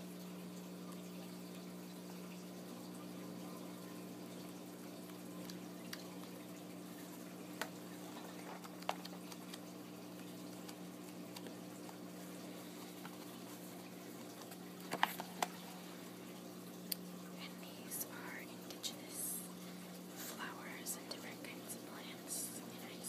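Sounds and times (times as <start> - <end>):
steady low hum: 0.0 - 23.0
book pages turning: 7.6 - 12.1, 12.8 - 15.8.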